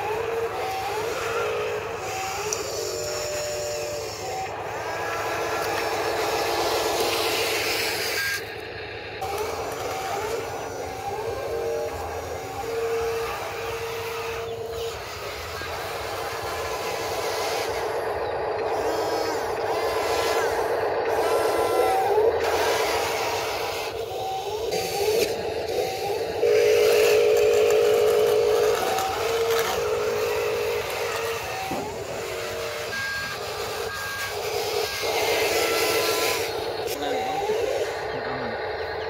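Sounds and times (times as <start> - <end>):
wheel loader mechanical hum: 0.0 - 39.0
short whistling tones: 21.1 - 36.2.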